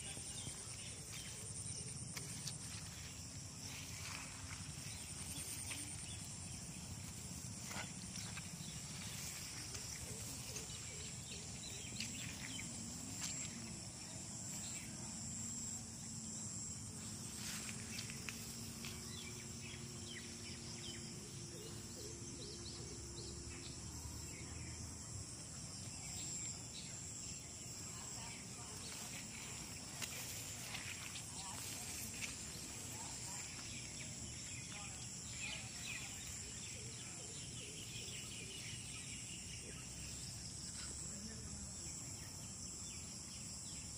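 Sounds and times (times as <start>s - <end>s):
high insect drone: 0.0s - 43.9s
soft rustles and ticks: 17.0s - 19.8s.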